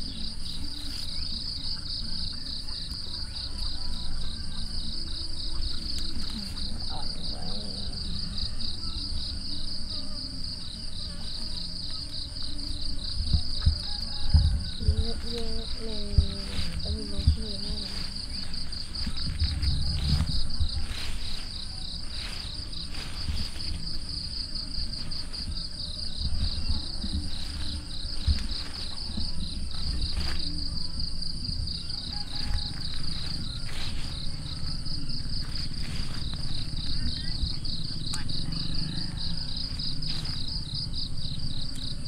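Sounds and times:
insects trilling: 0.0 - 42.0
low thumps and rumble: 13.0 - 21.0.

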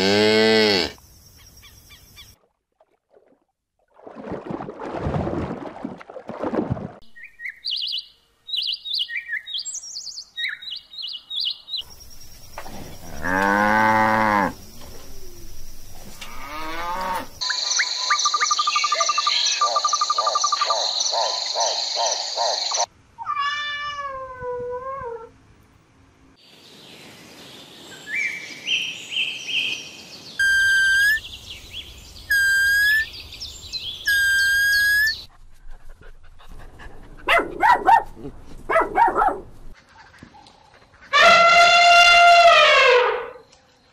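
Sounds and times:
bird chirps: 7.1 - 12.5, 17.4 - 22.9, 27.9 - 35.3
cat meowing: 23.2 - 24.7.

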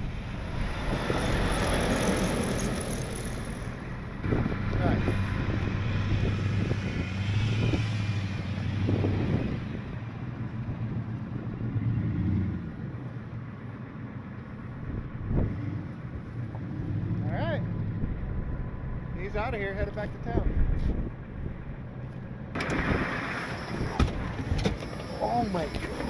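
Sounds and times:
truck engines idling: 0.0 - 7.3, 12.6 - 26.0
vehicle driving past: 0.0 - 13.6, 14.7 - 19.3.

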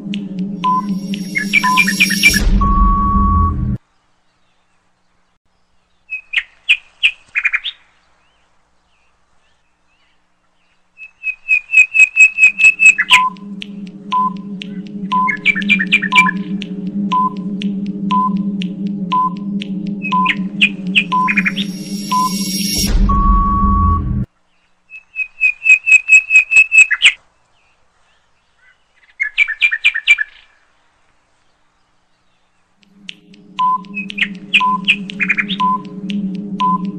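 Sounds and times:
chirping whistle notes: 0.0 - 3.8, 11.2 - 24.3, 32.9 - 36.9
countdown timer beeping: 0.0 - 3.8, 12.2 - 24.3, 32.8 - 36.9
high chirps: 0.0 - 3.8, 11.7 - 24.3, 32.8 - 36.9
low steady drone: 0.0 - 3.8, 12.2 - 24.3, 32.8 - 36.9
bird chirping: 8.9 - 17.4.

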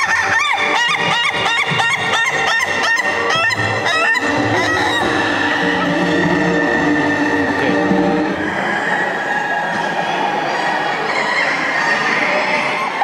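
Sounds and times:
rooster laughing call: 0.0 - 7.4.

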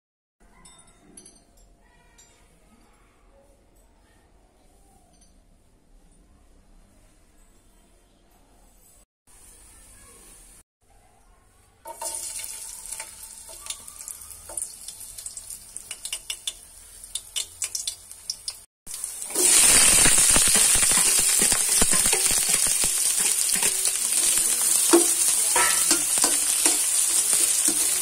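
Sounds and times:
garlic crackling in hot oil: 11.9 - 28.0
onions sizzling in oil: 11.9 - 28.0.

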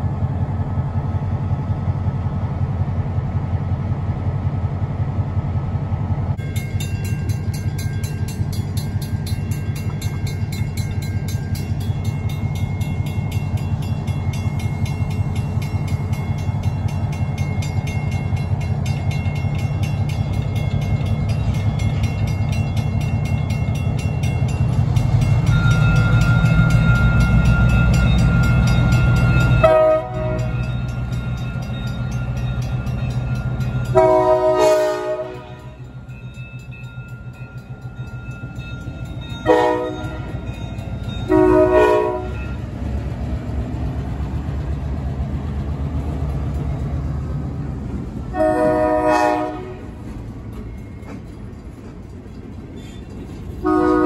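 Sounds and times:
diesel locomotives rumbling: 0.0 - 54.0
train horn blast: 29.6 - 30.6, 33.9 - 35.8, 39.4 - 40.5, 41.3 - 42.6, 48.3 - 50.0, 53.6 - 54.0
mechanical crossing bell ringing: 35.7 - 41.6.

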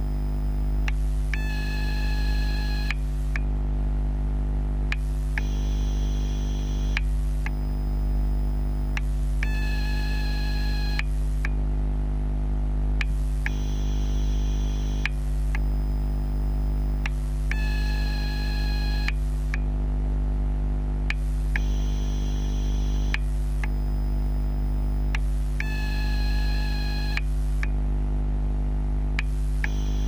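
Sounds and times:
high electrical whine: 0.0 - 3.4, 5.0 - 11.5, 13.1 - 19.6, 21.2 - 27.6, 29.2 - 30.0
low electrical hum: 0.0 - 30.0.

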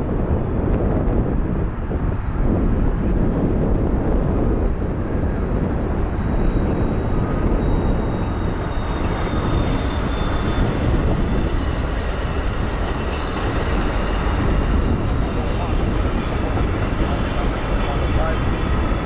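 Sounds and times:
diesel locomotive passing: 0.0 - 19.0
train cars rolling over rails: 5.0 - 19.0.

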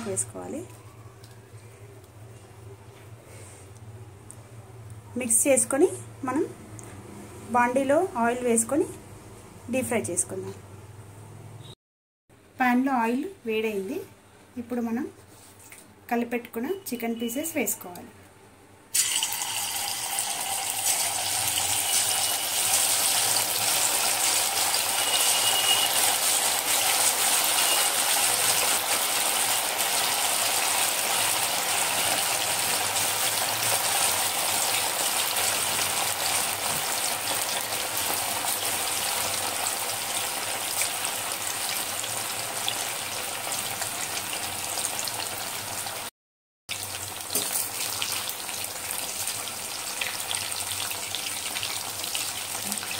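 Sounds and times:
chicken sizzling in hot oil: 18.9 - 46.1, 46.7 - 52.9.

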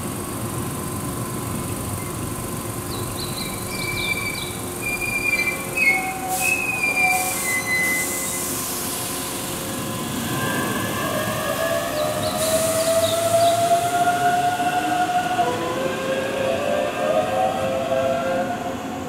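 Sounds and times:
train brakes squealing: 3.2 - 18.9.

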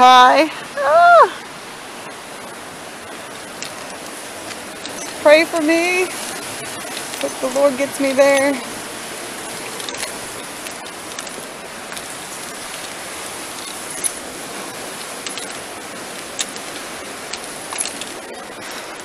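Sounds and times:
river rushing: 0.0 - 19.0.

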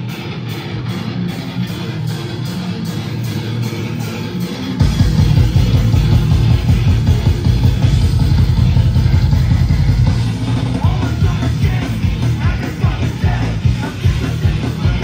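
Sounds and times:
punk band playing live: 0.0 - 15.0.

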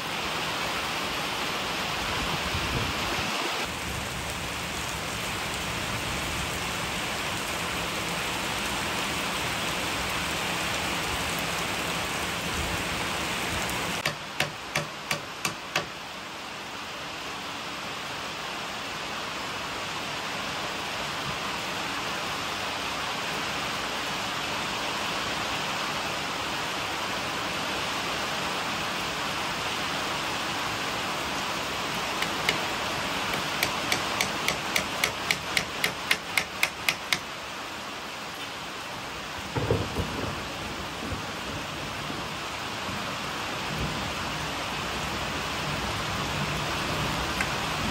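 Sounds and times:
steady rain hiss: 0.0 - 47.9
sharp knocks: 14.0 - 15.9, 33.3 - 37.2
hammer blows: 14.0 - 16.0, 33.3 - 37.3.

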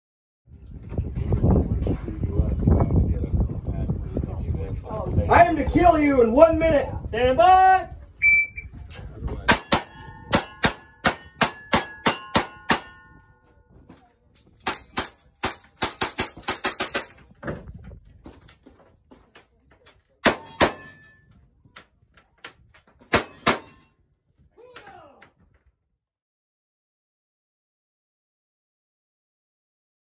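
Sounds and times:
steel targets ringing: 9.5 - 13.4, 20.3 - 21.3, 23.2 - 23.9.

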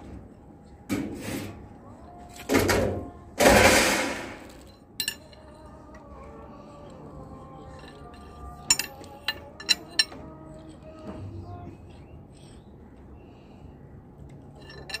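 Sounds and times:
wrench clinking on metal pulley: 4.4 - 11.0, 14.3 - 15.0.

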